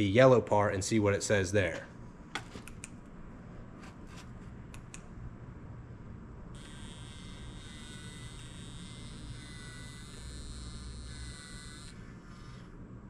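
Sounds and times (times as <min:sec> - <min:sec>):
analyzer high-pitched whine: 0:06.5 - 0:12.8.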